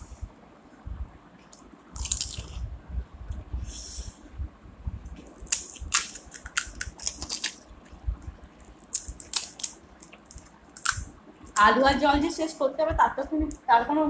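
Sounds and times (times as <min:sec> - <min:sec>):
crisp shells cracking: 0:02.0 - 0:02.5, 0:05.4 - 0:07.6, 0:08.6 - 0:11.6.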